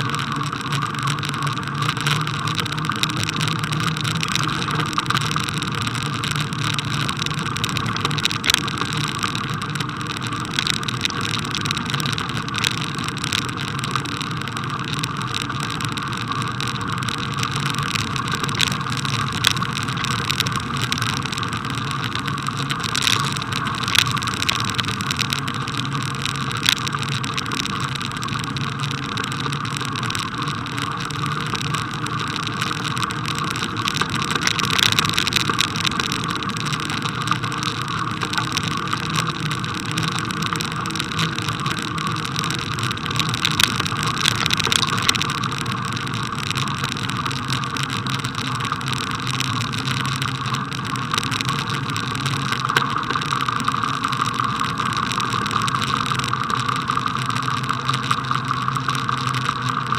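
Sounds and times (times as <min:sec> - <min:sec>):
bicycle tyres on packed snow: 0:00.0 - 0:59.9.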